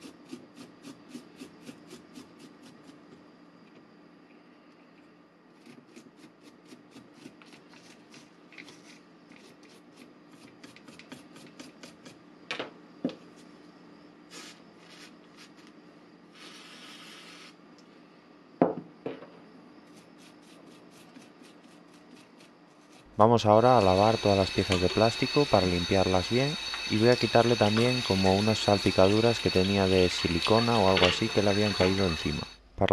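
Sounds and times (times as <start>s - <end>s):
brief hiss: 16.3s - 17.6s.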